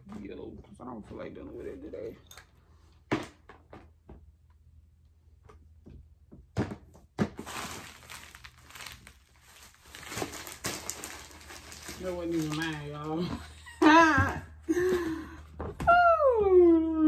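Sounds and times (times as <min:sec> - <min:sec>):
plastic bag crinkling: 0:07.4 - 0:13.4.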